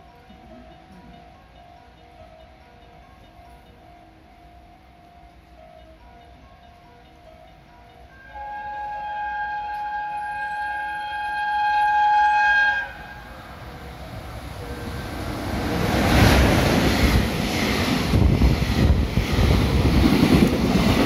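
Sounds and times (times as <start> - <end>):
freight train rumble: 5.3 - 21.0
train horn blast: 8.2 - 13.4
train wheels clattering: 15.0 - 21.0.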